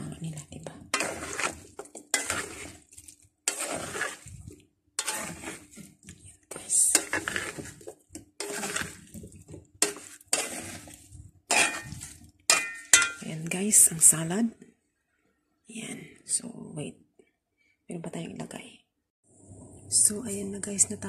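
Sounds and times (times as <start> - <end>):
plastic paddle scraping pan: 0.9 - 12.7.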